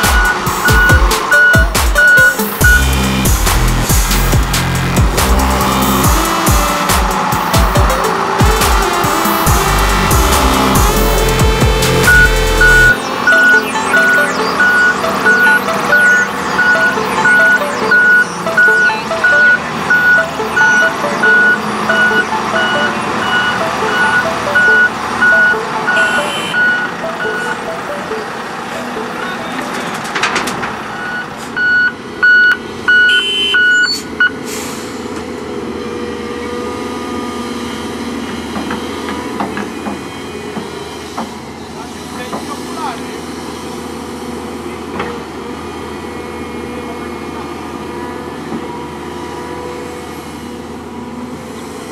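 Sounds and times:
diesel truck engine rumble: 0:00.0 - 0:32.9
reversing alarm beeping: 0:00.0 - 0:34.8.

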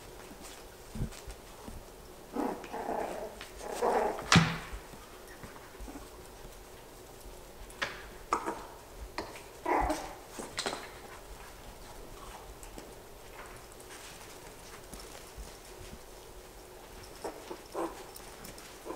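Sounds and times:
puppies yapping and growling: 0:02.3 - 0:04.5, 0:05.1 - 0:06.5, 0:09.4 - 0:11.1, 0:17.0 - 0:18.9.

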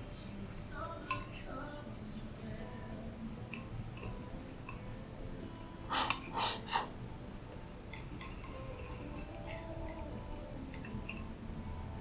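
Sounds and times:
chopsticks clinking on ceramic bowl: 0:07.9 - 0:10.1, 0:10.7 - 0:11.3.

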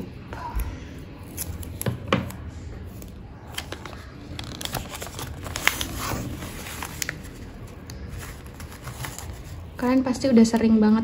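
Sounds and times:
paper rustling and crinkling: 0:01.3 - 0:09.8.

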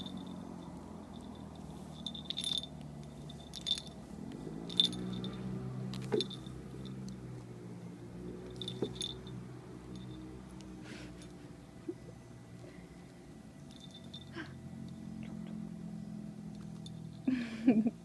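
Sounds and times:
metal chain clinking: 0:00.0 - 0:07.2, 0:08.4 - 0:10.6, 0:13.6 - 0:15.0, 0:16.5 - 0:17.3
low steady hum: 0:00.0 - 0:18.0.

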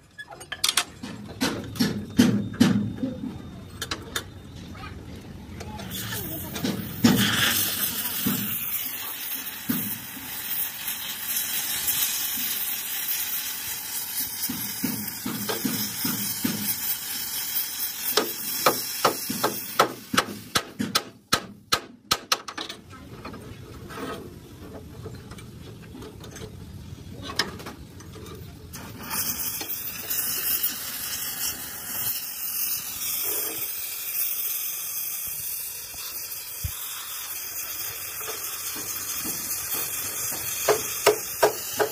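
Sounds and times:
welding torch flame hissing: 0:05.8 - 0:21.0, 0:28.7 - 0:41.9.

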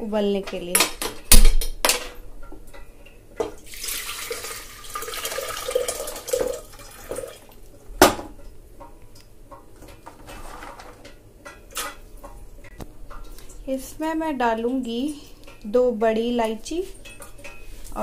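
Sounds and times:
water pouring and splashing into a pot: 0:03.5 - 0:07.6.

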